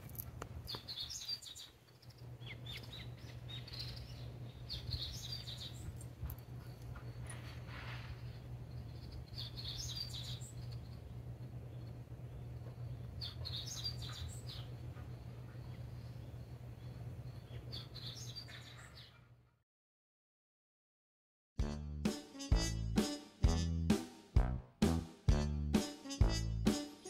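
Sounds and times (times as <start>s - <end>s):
small birds chirping: 0.1s - 19.4s
steady low hum: 1.8s - 18.4s.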